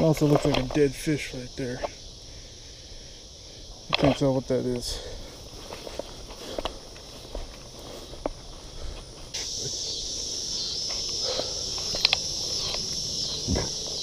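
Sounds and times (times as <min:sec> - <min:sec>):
insects buzzing: 0:00.0 - 0:14.0
footsteps through tall grass: 0:03.7 - 0:14.0.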